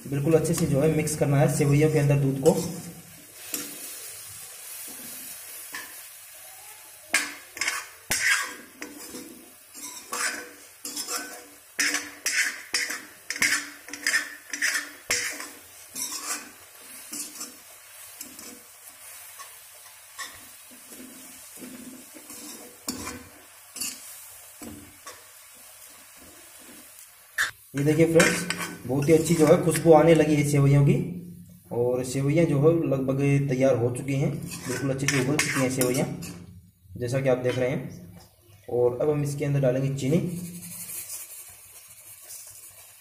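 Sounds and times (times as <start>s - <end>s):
metal spoon scraping a pan: 0.2s - 4.0s, 7.1s - 25.3s, 27.4s - 30.3s, 34.2s - 36.5s, 40.1s - 43.0s.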